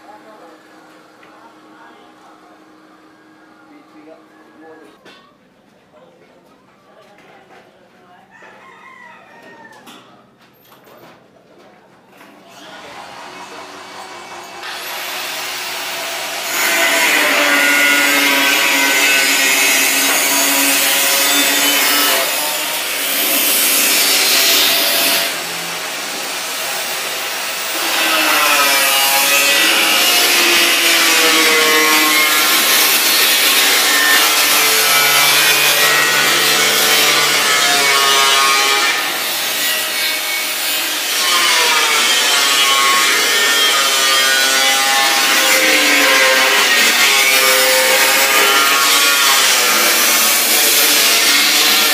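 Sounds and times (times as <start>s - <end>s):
angle grinder cutting steel: 12.5s - 51.9s.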